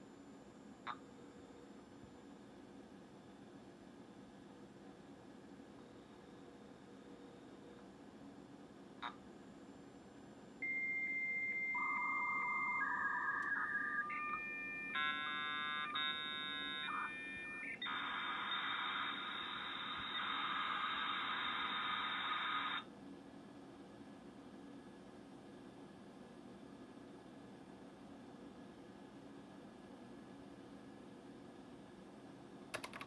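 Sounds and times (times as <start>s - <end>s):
cluster of modem tones: 10.6s - 22.9s
modem hissing noise: 17.8s - 22.8s.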